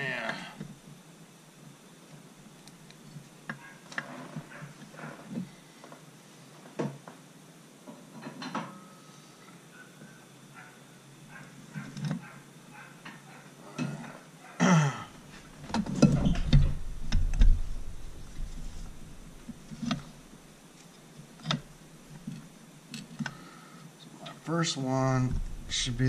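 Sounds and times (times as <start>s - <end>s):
heavy metal thumps and rattles: 15.6s - 20.3s, 25.2s - 26.0s.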